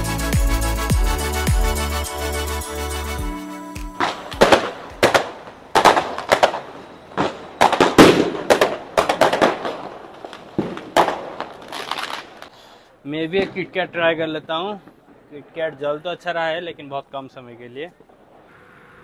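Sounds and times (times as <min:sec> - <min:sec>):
firecrackers and fireworks bangs: 0:03.8 - 0:16.6, 0:17.6 - 0:19.0.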